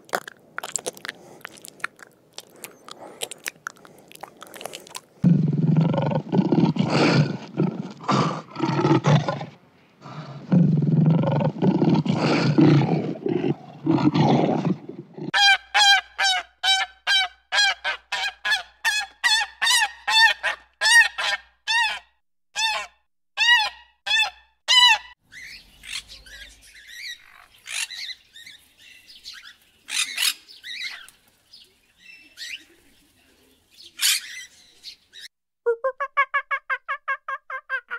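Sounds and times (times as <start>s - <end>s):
lion roaring: 5.2s - 15.4s
budgerigars chirping and squawking: 25.3s - 31.1s, 33.8s - 35.3s.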